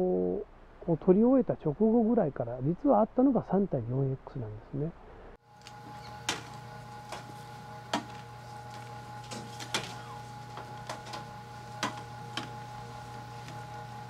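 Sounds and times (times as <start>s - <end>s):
steady machine hum: 5.0s - 14.0s
trays and bags clicking and knocking: 5.6s - 14.0s.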